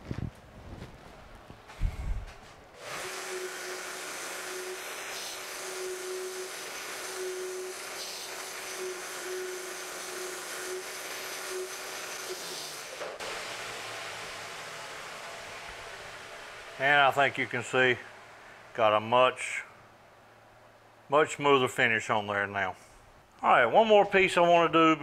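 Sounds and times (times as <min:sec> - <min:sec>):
grinder motor hum: 0:02.8 - 0:17.7
belt grinder hissing: 0:02.8 - 0:18.6.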